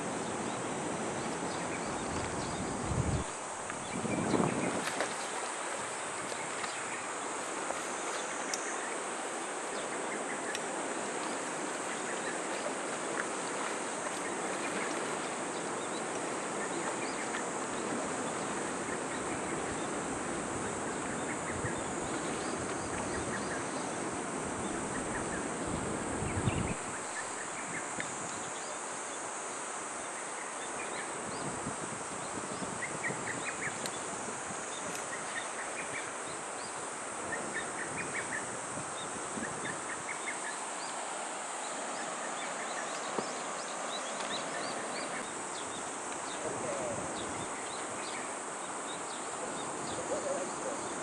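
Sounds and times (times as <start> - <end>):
paddles dipping in water: 0.0 - 25.6, 32.1 - 51.0
insects chirring: 0.0 - 51.0
slow river water washing: 0.0 - 51.0.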